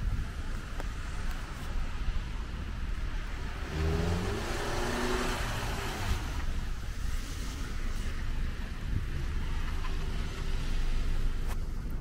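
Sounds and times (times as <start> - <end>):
low traffic rumble: 0.0 - 12.0
car engine accelerating: 0.5 - 12.0
tyre hiss on wet road: 3.1 - 11.6.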